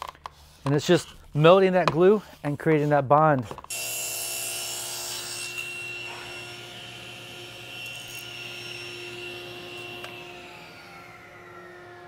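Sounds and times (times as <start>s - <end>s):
table saw blade whining: 3.7s - 12.0s.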